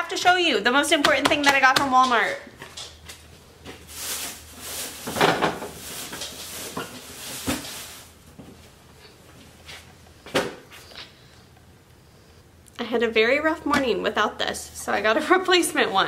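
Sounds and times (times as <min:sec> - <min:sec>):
plastic bags rustling: 0:03.6 - 0:08.4.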